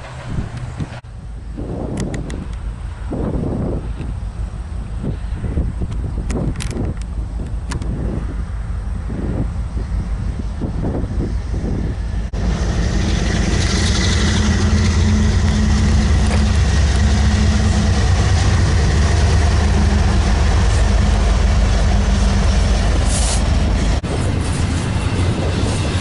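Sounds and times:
diesel locomotive engines droning: 0.0 - 26.0
high hiss: 23.0 - 23.6.

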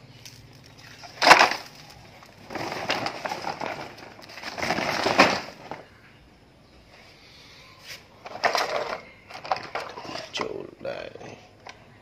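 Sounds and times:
woven plastic sack rustling: 0.1 - 6.0
plastic toy truck clattering: 0.2 - 5.9, 8.2 - 10.6.

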